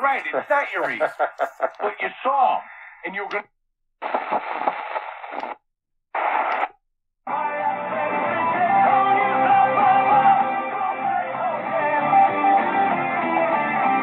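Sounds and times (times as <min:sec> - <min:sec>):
guitar music on radio: 0:00.0 - 0:02.5, 0:04.0 - 0:05.6, 0:06.2 - 0:14.0
radio tuning between stations: 0:00.0 - 0:06.8.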